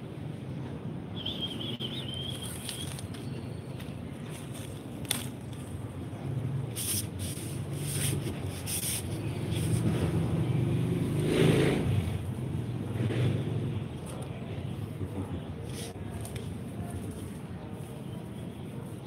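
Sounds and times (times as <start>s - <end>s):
passing vehicle engine hum: 6.1s - 16.0s.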